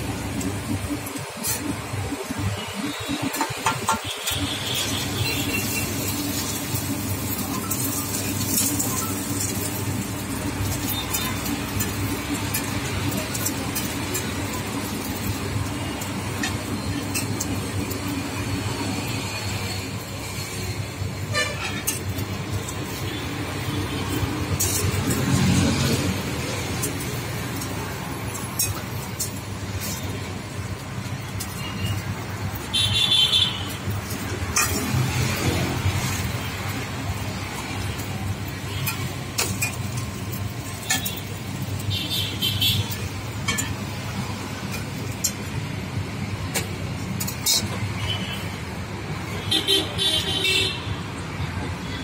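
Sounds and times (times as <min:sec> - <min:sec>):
flatbread sizzling in oil: 0:00.0 - 0:50.4
roadside traffic: 0:00.0 - 0:52.0
metal spatula scraping griddle: 0:21.2 - 0:23.1, 0:23.9 - 0:27.7, 0:33.7 - 0:36.8, 0:38.7 - 0:41.6, 0:46.5 - 0:48.4.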